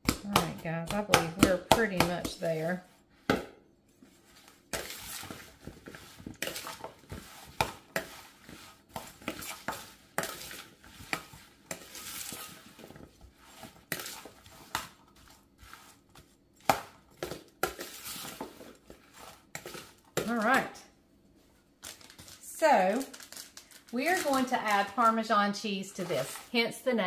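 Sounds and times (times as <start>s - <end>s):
spoon scraping plastic bowl: 4.0s - 20.6s, 24.0s - 26.9s.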